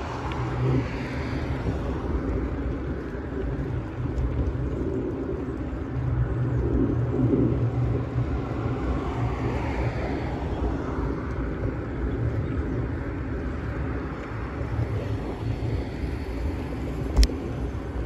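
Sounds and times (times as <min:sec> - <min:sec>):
low hum: 0:00.0 - 0:18.0
vehicle rumbling on rough asphalt: 0:00.0 - 0:18.0.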